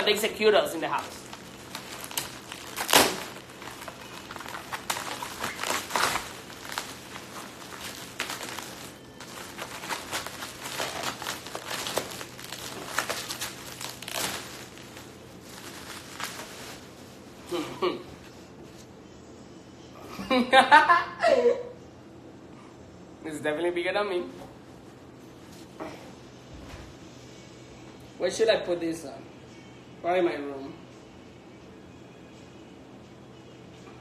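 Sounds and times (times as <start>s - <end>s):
packaging rustling and crinkling: 0.0s - 17.4s.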